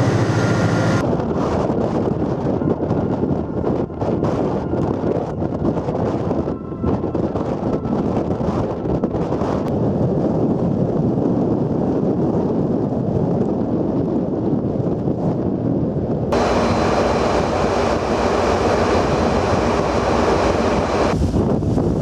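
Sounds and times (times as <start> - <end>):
ship engine drone: 0.0 - 11.1, 16.3 - 22.0
sea rushing along hull: 0.0 - 12.0, 16.0 - 22.0
wind buffeting microphone: 0.0 - 22.0.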